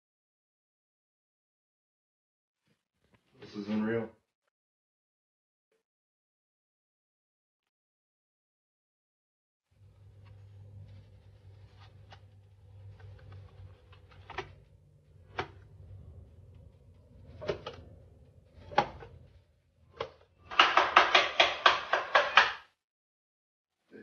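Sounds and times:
knocks and taps: 20.0 - 22.7.

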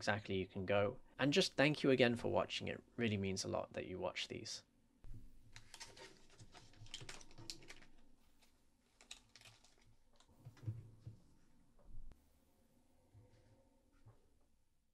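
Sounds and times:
plastic bags rustling and clicking: 5.5 - 10.7.

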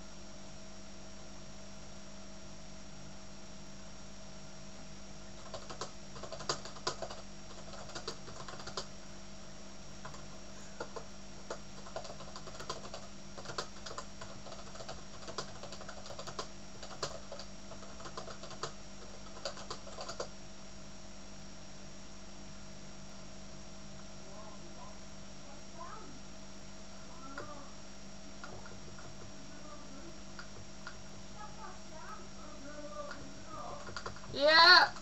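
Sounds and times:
faint hum: 0.0 - 35.0
keyboard typing clicks: 5.4 - 8.9, 10.8 - 20.3, 28.4 - 29.3, 33.1 - 34.3.

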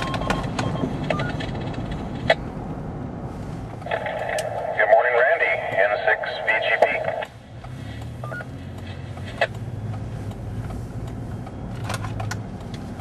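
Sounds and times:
car engine and road noise: 0.0 - 13.0
radio clicks: 3.8 - 7.8
short electronic beeps: 8.2 - 8.5.

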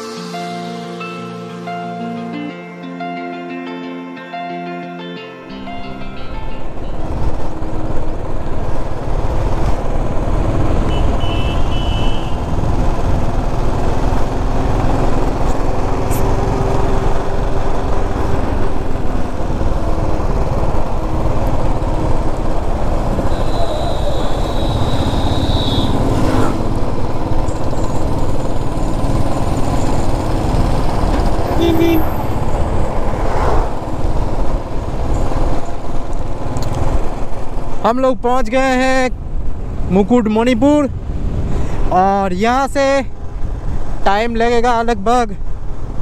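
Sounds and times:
motorcycle engine: 6.6 - 37.8
wind rush: 12.2 - 37.8, 39.2 - 44.1.

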